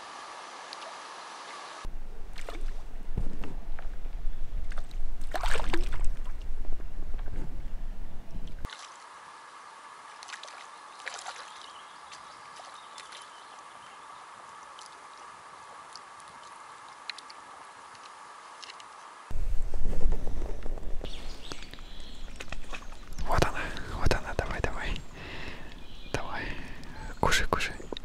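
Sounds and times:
wind rumble on microphone: 1.9s - 8.7s, 19.3s - 26.2s
water lapping at shoreline: 4.6s - 6.4s, 8.6s - 19.3s
faint high chirps and clicks: 21.0s - 28.0s.

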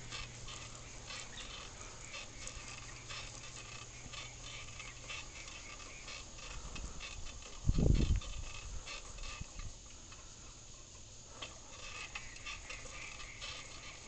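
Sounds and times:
bicycle clicks and rattles: 0.0s - 14.0s
bicycle rolling rumble: 0.0s - 14.0s.

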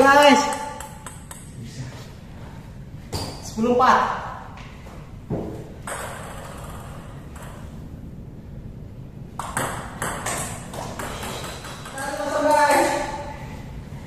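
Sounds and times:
table tennis ball hits: 0.0s - 1.6s, 5.3s - 7.8s, 9.4s - 13.2s.

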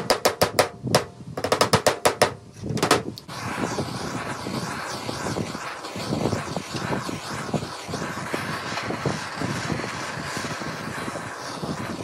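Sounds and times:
hammer tapping nails into wood: 0.0s - 3.0s
gas torch flame hissing: 2.5s - 12.0s.

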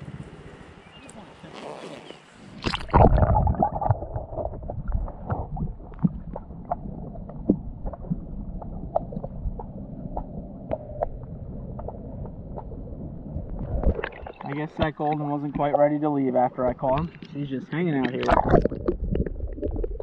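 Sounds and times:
muffled underwater water rush: 2.1s - 20.0s
splash underwater: 2.5s - 11.2s, 13.4s - 15.2s, 18.0s - 20.0s
bubbles ticking and popping: 2.6s - 20.0s.

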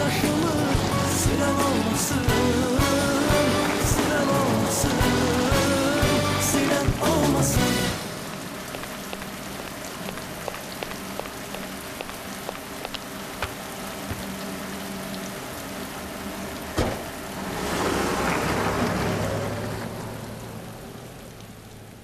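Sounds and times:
steady rain falling: 0.0s - 22.0s
car door shutting: 16.8s - 17.1s.

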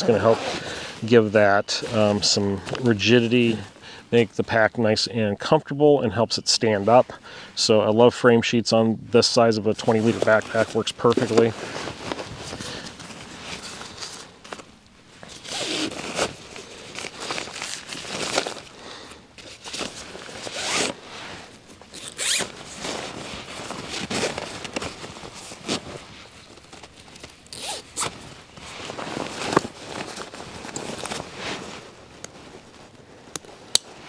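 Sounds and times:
zippers zipping: 0.0s - 0.9s, 15.3s - 16.4s, 20.4s - 21.0s, 21.9s - 23.2s, 27.5s - 28.2s
backpack fabric rustling: 0.0s - 1.2s, 9.9s - 34.0s.

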